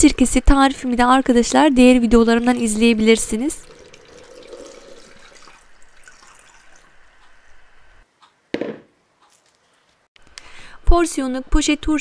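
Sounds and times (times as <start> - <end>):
brine trickling into jar: 2.4 - 6.9.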